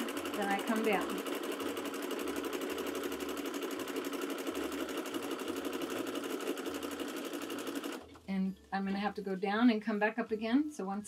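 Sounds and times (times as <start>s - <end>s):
sewing machine running: 0.0s - 8.3s.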